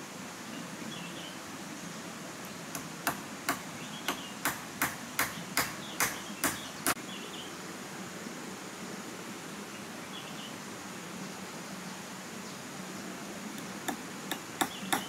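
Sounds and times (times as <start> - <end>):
hand tool striking wood framing: 2.7 - 6.6, 13.9 - 15.0.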